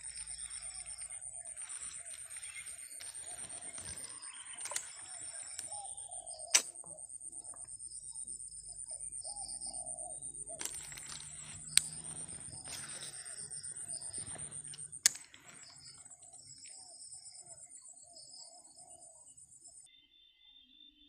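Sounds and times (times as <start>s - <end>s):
sharp clicks: 0.0s - 5.8s, 6.4s - 7.6s, 10.5s - 16.0s
short arching calls: 0.0s - 7.6s, 8.8s - 17.7s
steady high-pitched drone: 0.0s - 15.0s.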